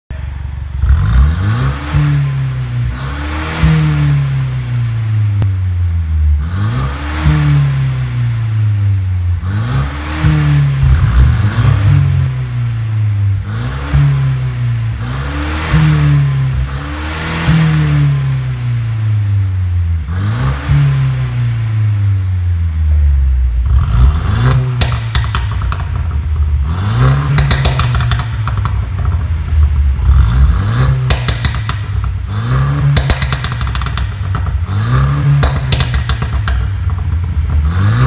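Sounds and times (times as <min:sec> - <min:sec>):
car engine revving: 0:00.1 - 0:38.0
exhaust pops: 0:10.2 - 0:12.4, 0:23.6 - 0:38.0.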